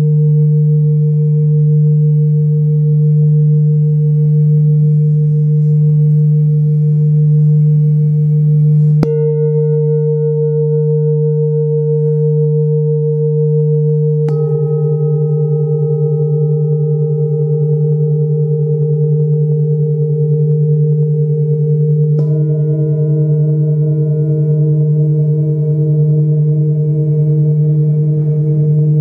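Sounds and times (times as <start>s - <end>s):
singing bowls humming: 0.0s - 29.0s
mallet striking singing bowl: 9.0s - 12.2s, 14.0s - 17.4s, 22.1s - 25.8s.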